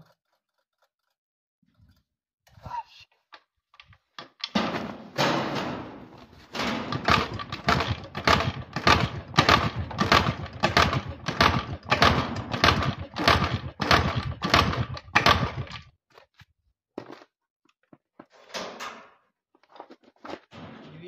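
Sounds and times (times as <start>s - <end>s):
motorcycle engine turning over: 4.5s - 15.9s.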